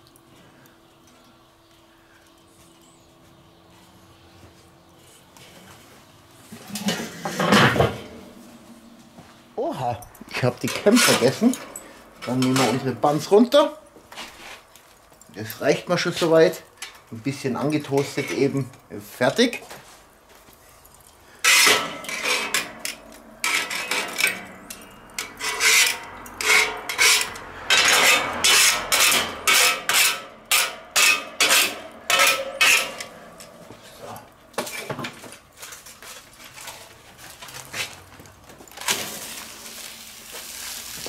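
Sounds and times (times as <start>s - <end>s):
metal tongs scraping griddle: 6.5s - 8.6s, 10.3s - 13.6s, 17.7s - 18.7s, 21.4s - 34.9s.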